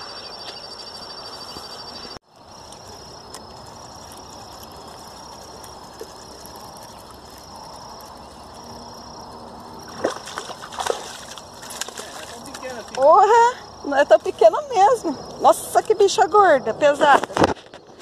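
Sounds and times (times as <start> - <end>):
insect trilling: 0.0 - 17.8
outdoor background noise: 0.0 - 18.0
fish splashing in water: 9.8 - 13.0.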